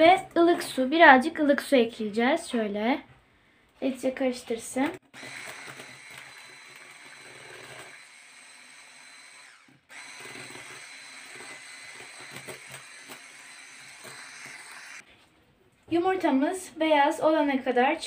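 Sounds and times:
electric hand mixer whining: 0:05.0 - 0:15.0.

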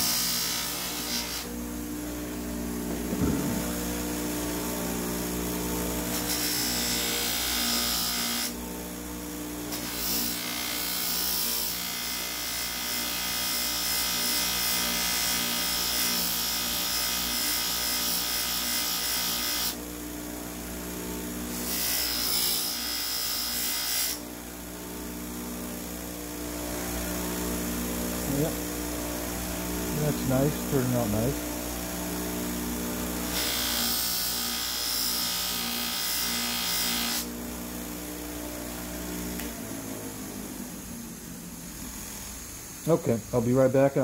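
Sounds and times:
bench buffer motor hum: 0:00.0 - 0:11.0, 0:19.8 - 0:43.9.

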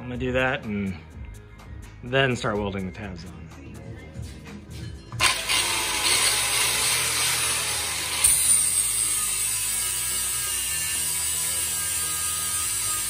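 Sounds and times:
angle grinder grinding metal: 0:05.2 - 0:13.0.

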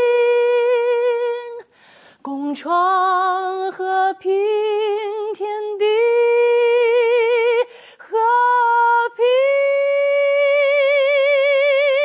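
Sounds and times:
singer breathing: 0:01.7 - 0:02.3, 0:07.7 - 0:08.0.

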